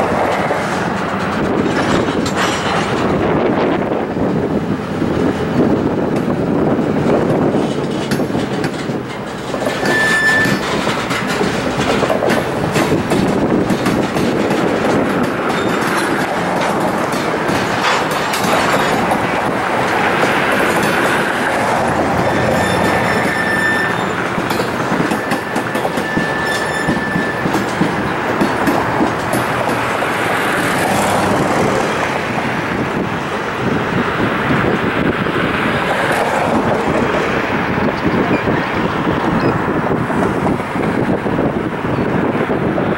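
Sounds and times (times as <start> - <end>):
freight cars rumbling on track: 0.0 - 42.9
clicks over rail joints: 0.1 - 3.8, 7.1 - 32.1
high-pitched wheel squeals: 9.7 - 10.8, 22.2 - 27.8.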